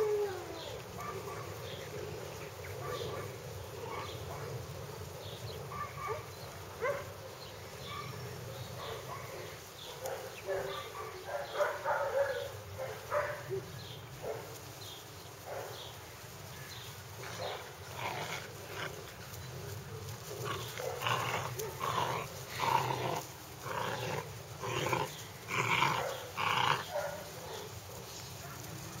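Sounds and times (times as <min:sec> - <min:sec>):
puppies growling in play: 0:00.0 - 0:05.7, 0:17.0 - 0:27.8.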